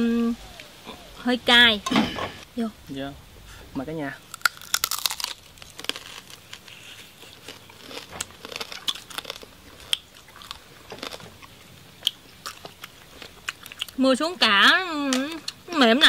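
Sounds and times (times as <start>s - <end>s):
crunching and chewing: 4.2s - 14.0s.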